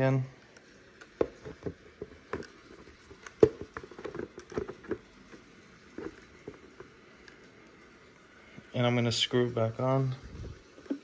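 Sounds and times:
plastic clicks and knocks: 3.2s - 5.1s.

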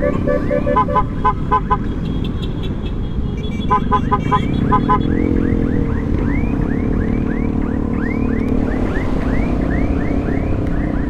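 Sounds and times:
electronic alarm chirping: 0.0s - 1.1s.

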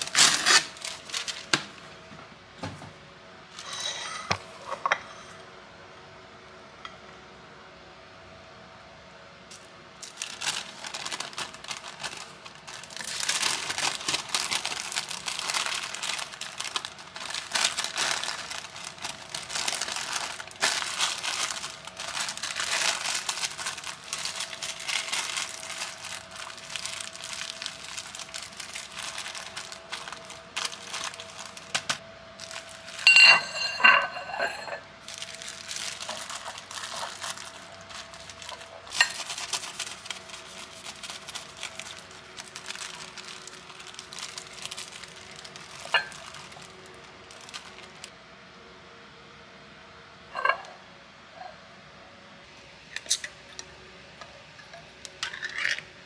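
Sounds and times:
cling film crinkling: 0.0s - 1.8s, 9.5s - 33.3s, 35.0s - 48.1s.

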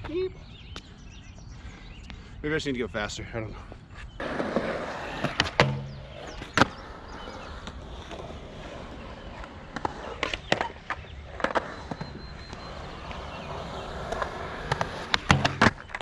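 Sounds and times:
skateboard wheels rolling: 4.2s - 16.0s
skateboard clacks: 5.2s - 6.8s, 9.0s - 16.0s.

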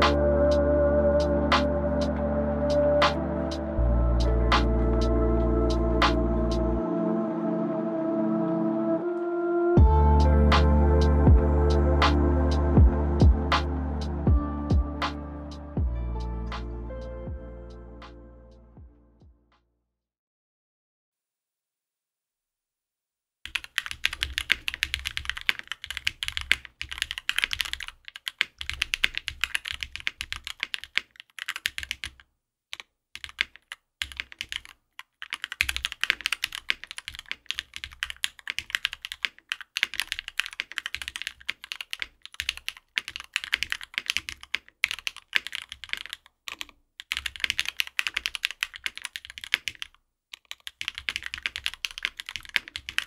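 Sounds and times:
mechanical keyboard typing: 23.5s - 53.0s.

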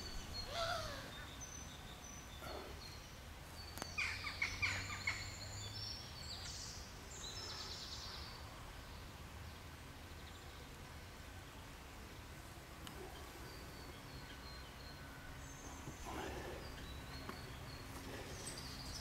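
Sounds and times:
loud bird calls: 0.0s - 3.2s, 3.8s - 5.6s, 12.9s - 19.0s
faint low hum: 5.5s - 19.0s.

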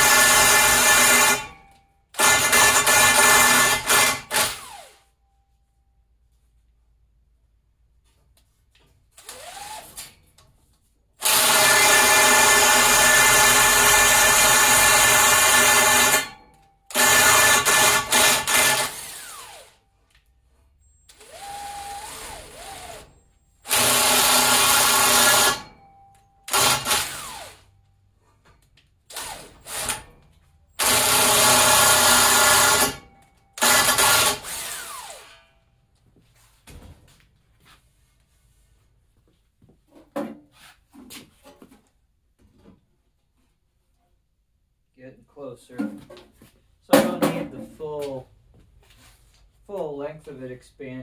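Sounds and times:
cordless drill running under load: 0.0s - 1.6s, 2.2s - 5.0s, 9.2s - 10.0s, 11.2s - 19.8s, 21.1s - 25.7s, 26.5s - 27.7s, 29.1s - 30.1s, 30.8s - 35.4s.

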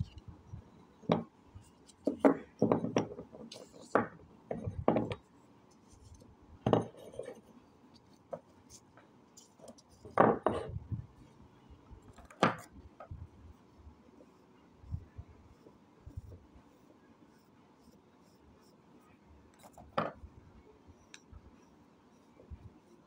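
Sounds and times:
clay discs knocking on table: 2.0s - 3.3s, 4.0s - 5.2s.

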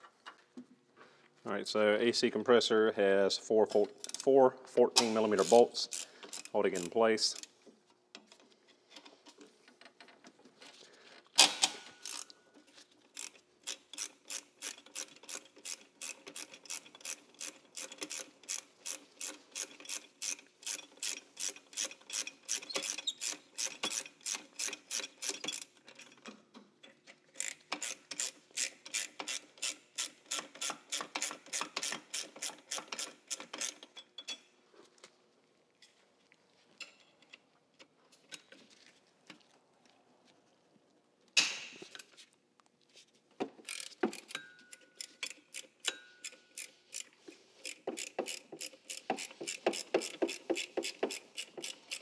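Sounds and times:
hand ratchet clicking: 5.0s - 7.5s, 11.4s - 12.4s, 13.1s - 26.2s, 27.3s - 34.0s, 43.6s - 52.0s
sharp crack: 41.4s - 41.8s.

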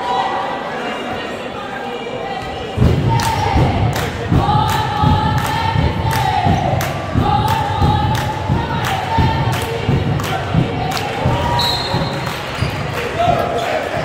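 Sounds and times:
thumping beat: 2.8s - 13.5s.

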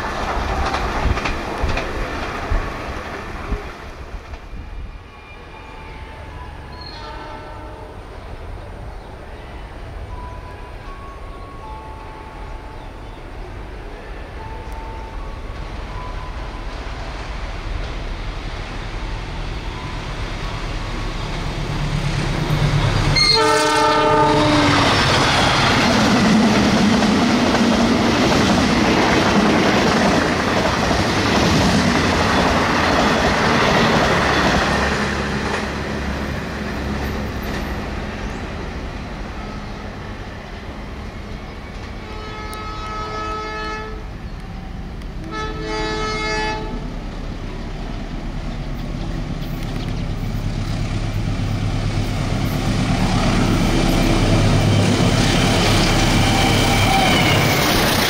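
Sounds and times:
diesel locomotive rumbling: 0.0s - 58.0s
train wheel and rail noise: 0.0s - 58.0s
distant locomotive horn: 5.1s - 8.2s, 19.3s - 25.9s, 41.9s - 47.0s, 53.0s - 58.0s
locomotive horn: 5.4s - 8.2s, 22.6s - 25.7s, 42.0s - 46.9s, 55.8s - 58.0s.

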